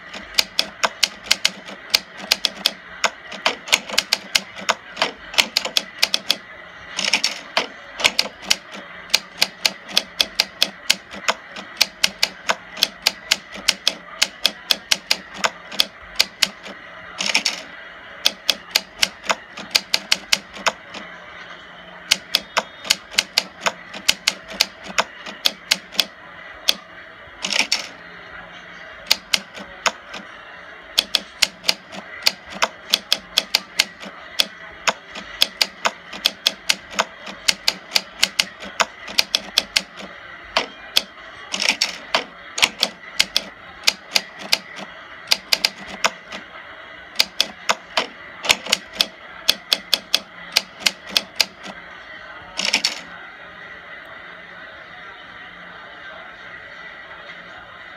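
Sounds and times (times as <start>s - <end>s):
typewriter carriage return: 0.1s - 6.4s, 7.0s - 17.6s, 27.4s - 27.9s, 31.0s - 40.7s, 41.5s - 46.4s, 52.6s - 53.0s.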